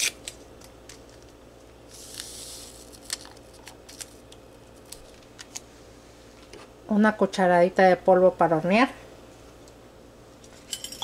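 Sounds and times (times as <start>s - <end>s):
paper packet handled and opened: 2.0s - 5.6s.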